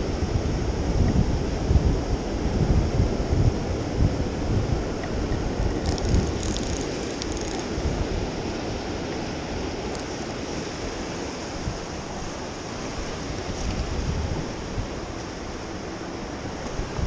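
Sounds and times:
wind noise on microphone: 0.0 - 17.0
surf washing against rocks: 4.2 - 17.0
light high ticks: 5.8 - 7.7, 9.9 - 10.2.

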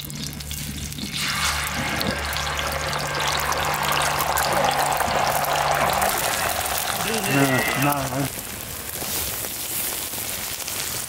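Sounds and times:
egg sizzling in hot oil: 0.0 - 11.0.

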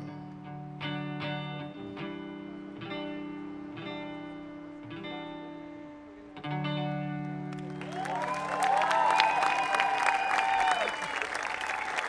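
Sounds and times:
electric guitar strumming chords: 0.0 - 7.9.

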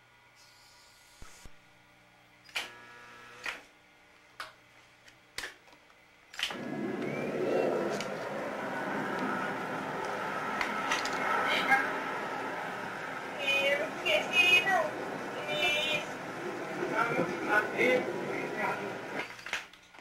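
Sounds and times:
film editing table running: 6.4 - 19.7.

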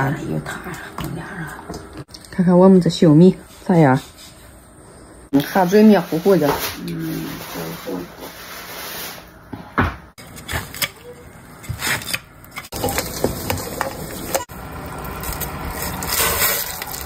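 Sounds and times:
meat pieces clattering in metal pot: 12.6 - 14.5.

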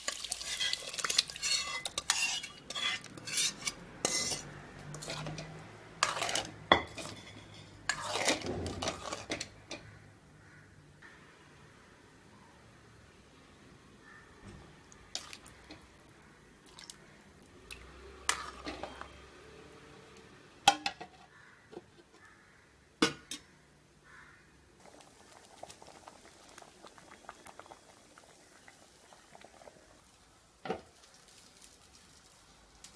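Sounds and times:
metal clinking on cooking pot: 0.2 - 8.5.

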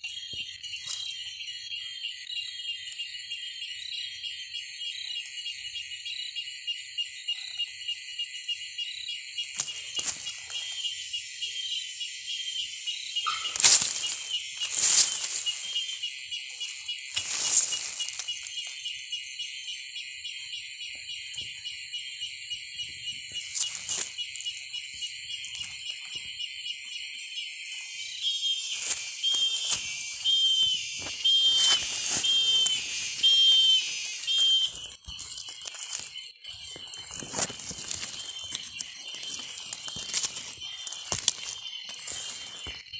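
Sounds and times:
animal scrabbling in dry leaves: 9.5 - 11.0, 13.2 - 18.8, 23.2 - 24.8, 28.6 - 42.8
high steady hiss: 28.5 - 34.7.

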